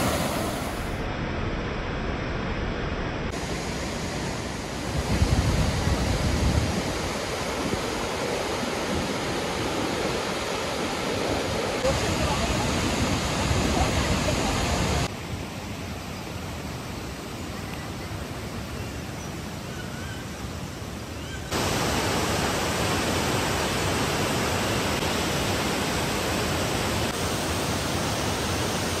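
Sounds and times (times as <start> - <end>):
waterfall rushing: 0.0 - 1.0, 3.3 - 15.2, 21.5 - 29.0.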